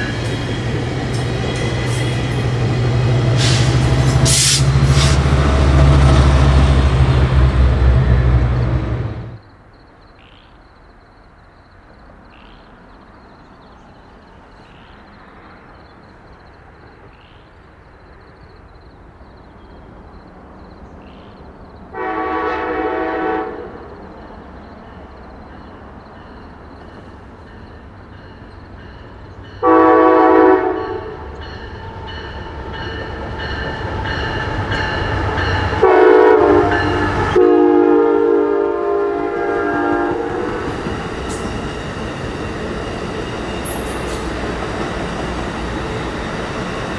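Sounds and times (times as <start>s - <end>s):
rail rumble: 0.0s - 46.9s
train air horn blasts: 3.3s - 5.4s, 21.9s - 23.9s, 29.6s - 31.4s, 35.7s - 40.8s.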